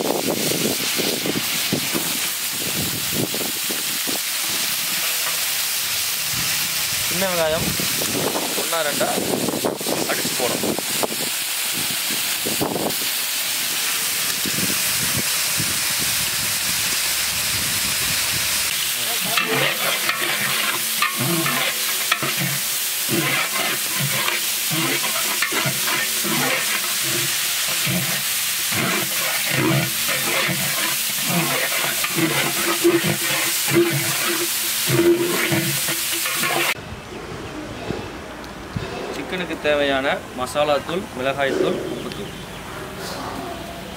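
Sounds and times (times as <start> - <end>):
shallots sizzling in hot oil: 0.0 - 36.8
metal ladle scraping a pot: 4.4 - 5.5, 19.2 - 36.8.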